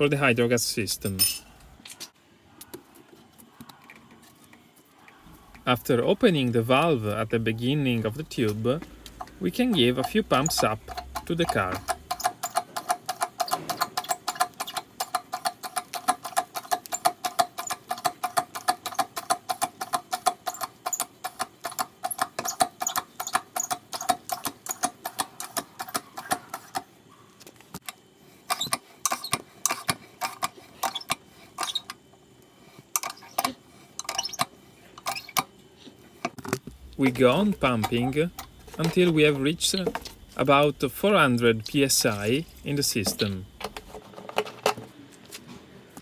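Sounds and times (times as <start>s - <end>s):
hand pump clicking and squeaking: 6.7s - 32.1s, 32.8s - 35.5s, 36.2s - 40.6s, 41.4s - 44.8s.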